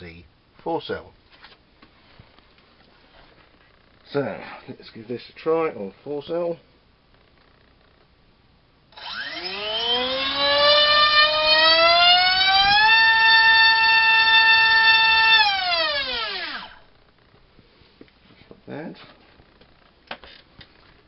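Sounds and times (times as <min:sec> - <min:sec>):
electric motor propeller whine: 0:08.9 - 0:16.9.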